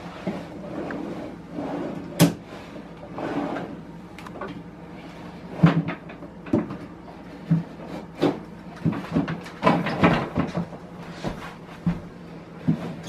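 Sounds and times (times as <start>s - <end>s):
freezer drawer clacks and knocks: 7.5s - 10.8s.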